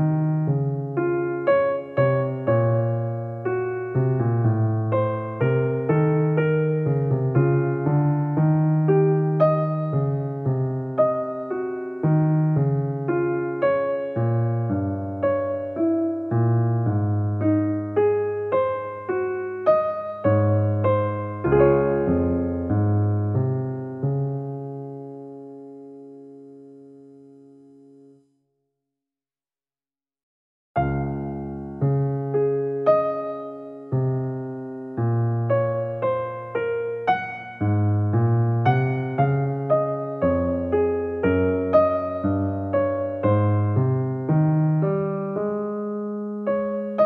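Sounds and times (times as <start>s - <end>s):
electric piano chords: 0.0s - 28.3s, 30.8s - 47.0s
electric piano notes: 30.8s - 47.0s.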